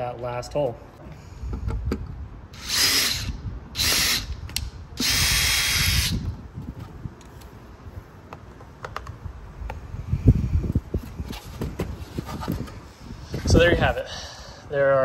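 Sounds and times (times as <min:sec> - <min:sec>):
cordless drill boring: 0:02.6 - 0:04.4, 0:05.0 - 0:06.2.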